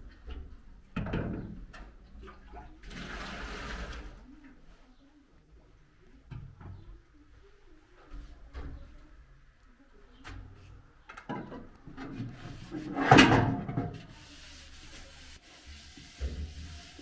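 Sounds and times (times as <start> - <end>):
rubbing and scraping: 11.9 - 17.0.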